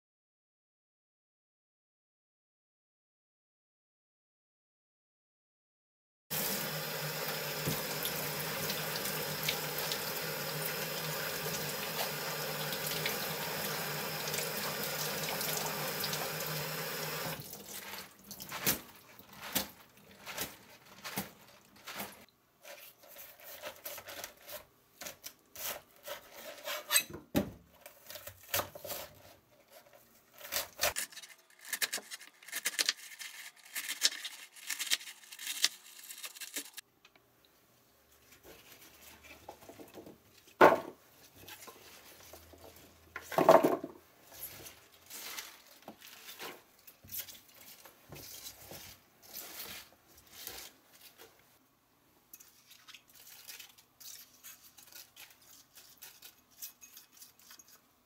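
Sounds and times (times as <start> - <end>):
tap running into sink: 6.4 - 10.1
splashes and rustles of leaves: 17.3 - 22.3, 44.3 - 51.2.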